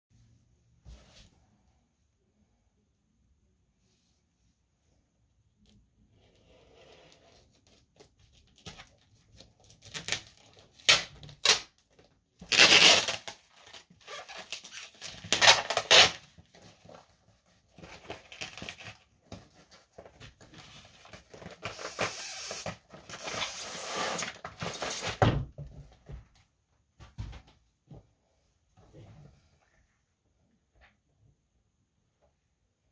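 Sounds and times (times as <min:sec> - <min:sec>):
paper mailer ripping and crinkling: 0:12.4 - 0:16.2.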